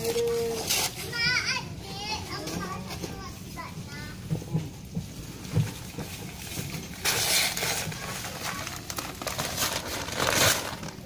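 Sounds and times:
plastic sack rustling and scraping: 0.0s - 3.3s, 5.0s - 11.0s
powder spilling: 6.4s - 11.0s.

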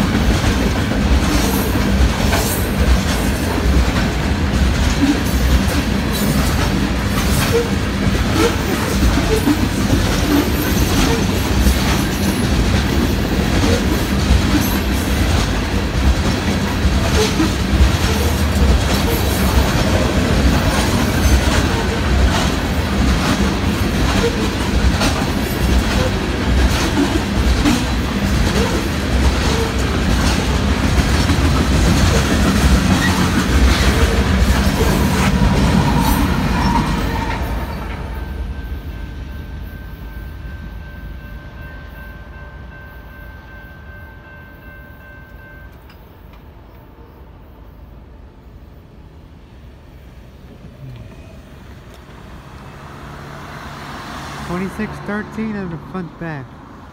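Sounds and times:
train wheels clacking over rail joints: 0.0s - 38.0s
locomotive engine: 0.0s - 38.9s, 49.8s - 56.9s
low rumble of rolling train: 0.0s - 56.9s.

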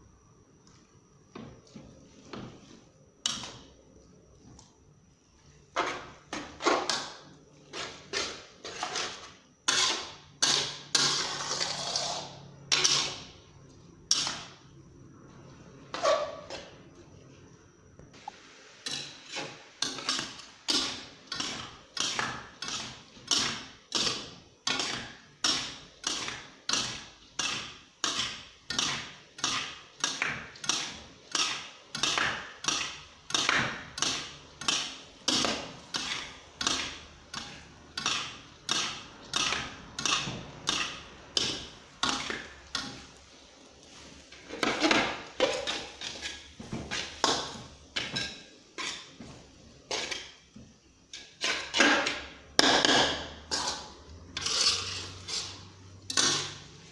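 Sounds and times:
metal spatula scraping a wok: 7.7s - 13.4s, 14.1s - 14.6s, 18.8s - 43.2s, 43.8s - 49.2s, 49.9s - 50.4s, 51.1s - 56.9s.

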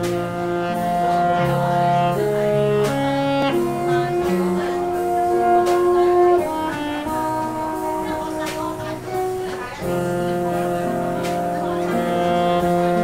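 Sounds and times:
band low sustained notes: 0.0s - 13.0s
saxophone jazz melody: 0.0s - 13.0s.

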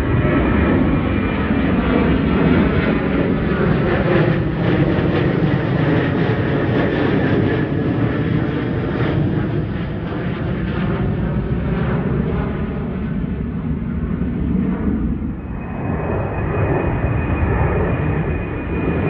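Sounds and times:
jet airliner engines roaring overhead: 0.0s - 19.0s.

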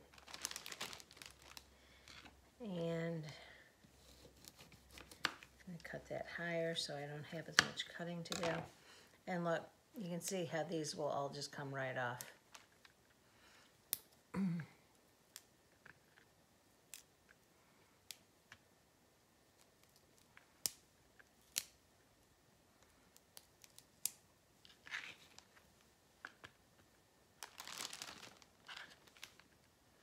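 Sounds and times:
plastic bag crinkling: 0.0s - 2.4s, 8.3s - 8.6s, 27.4s - 29.7s
broccoli stems snapping: 21.4s - 21.8s.

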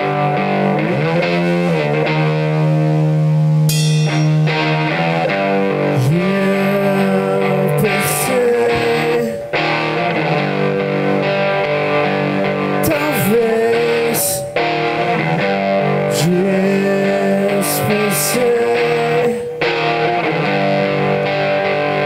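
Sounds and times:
rock band playing: 0.0s - 22.0s
cymbal crashes: 3.7s - 4.8s
man singing: 5.8s - 10.4s, 12.7s - 19.8s.

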